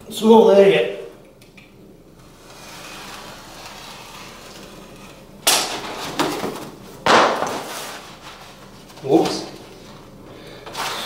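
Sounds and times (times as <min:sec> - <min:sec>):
loud scuffing noises: 0:05.8 - 0:10.1.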